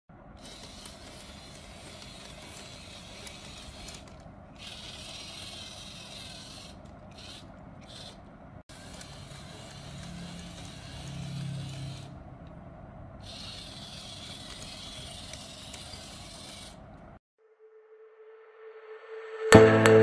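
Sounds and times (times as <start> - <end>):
toy motor whirring: 0.4 - 12.2, 13.2 - 17.2.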